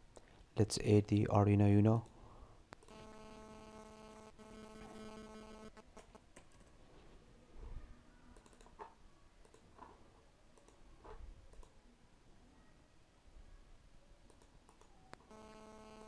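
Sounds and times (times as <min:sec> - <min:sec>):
faint electrical hum: 0:00.0 - 0:16.0
keyboard and mouse clicks: 0:06.0 - 0:06.8, 0:08.3 - 0:11.8, 0:14.2 - 0:15.3.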